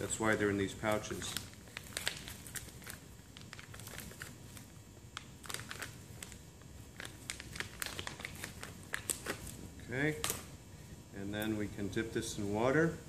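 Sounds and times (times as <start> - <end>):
plastic pouch crinkling: 0.8 - 9.6.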